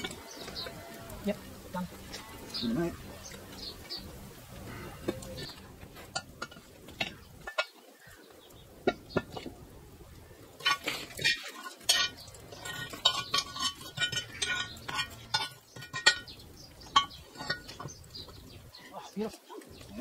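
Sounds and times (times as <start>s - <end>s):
metal hook scraping iron lid: 10.6s - 18.2s.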